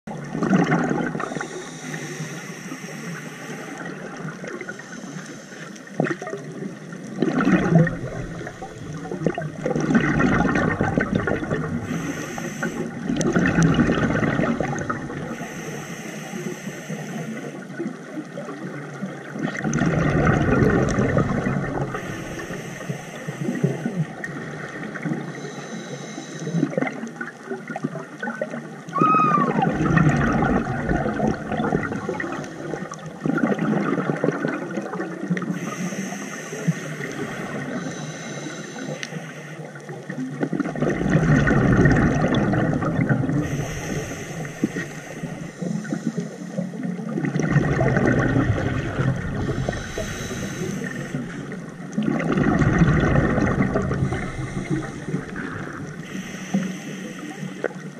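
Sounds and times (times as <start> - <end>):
exhaled bubbles rumbling: 0.0 - 15.5, 17.6 - 25.5, 26.5 - 35.8, 39.6 - 56.6
regulator inhale hiss: 1.2 - 6.0, 11.8 - 13.1, 15.2 - 17.8, 21.8 - 24.2, 25.2 - 26.8, 35.4 - 40.0, 43.4 - 46.8, 49.4 - 51.7, 53.9 - 57.9.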